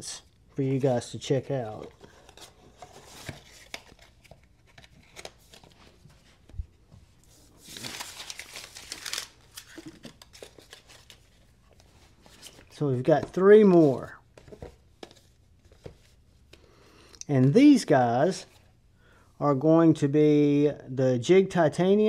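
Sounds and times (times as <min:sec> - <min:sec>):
packaging crinkling and tearing: 0:07.6 - 0:11.4.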